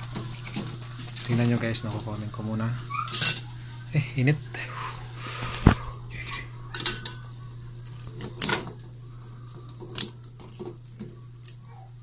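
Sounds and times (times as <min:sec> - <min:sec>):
water boiling: 0:00.0 - 0:11.4
metal tongs clinking on pot: 0:02.9 - 0:03.5, 0:06.2 - 0:08.7.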